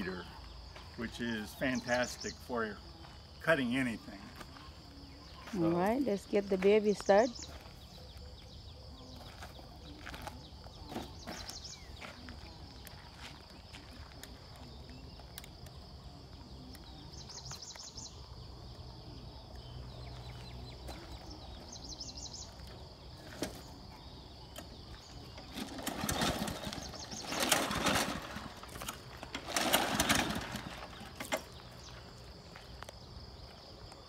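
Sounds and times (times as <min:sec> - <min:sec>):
lawn mower recoil starter pulls: 0:24.6 - 0:31.8.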